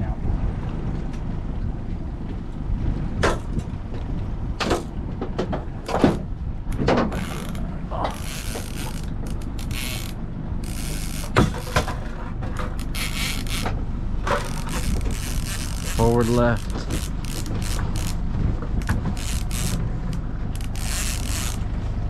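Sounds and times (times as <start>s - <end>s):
steady low rumble: 0.0s - 22.0s
fishing reel ratcheting clicks: 8.2s - 11.9s, 12.7s - 13.7s, 14.4s - 18.2s, 19.2s - 21.6s.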